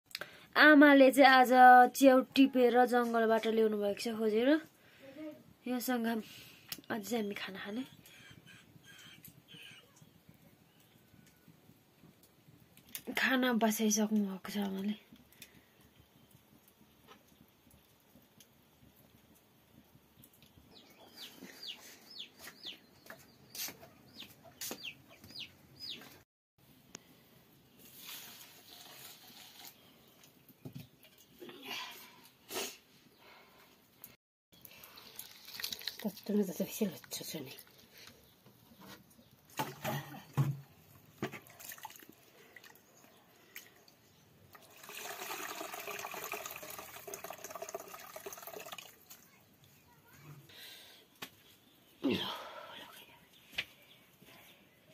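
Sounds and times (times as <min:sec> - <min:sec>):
chicks peeping: 0:21.0 - 0:23.2, 0:24.1 - 0:26.1
water being poured: 0:27.8 - 0:30.4, 0:34.6 - 0:37.8, 0:41.2 - 0:43.9, 0:44.5 - 0:49.3
water sloshing in a pot: 0:34.6 - 0:38.1, 0:39.4 - 0:49.7.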